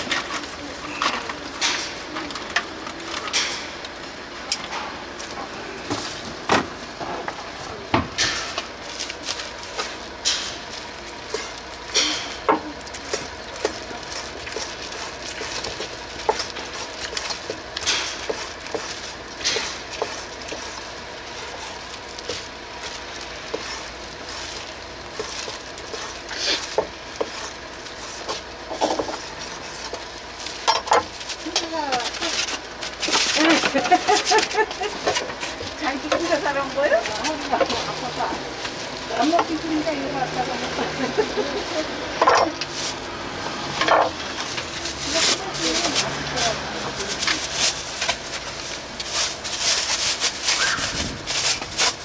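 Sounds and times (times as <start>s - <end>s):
utensils and dishes clinking: 0.0s - 3.8s, 11.3s - 14.8s.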